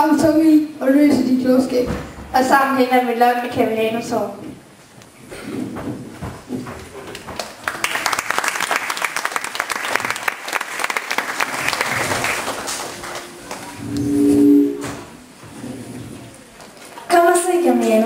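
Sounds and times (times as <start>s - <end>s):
audience applauding: 7.1s - 13.8s
short held tone: 13.1s - 15.3s.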